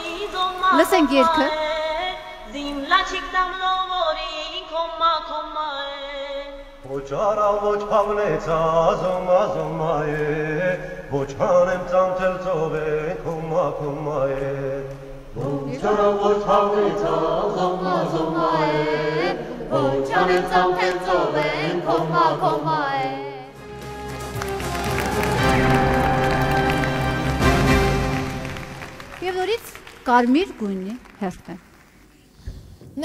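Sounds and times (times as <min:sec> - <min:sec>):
choir singing chant: 0:06.9 - 0:23.9.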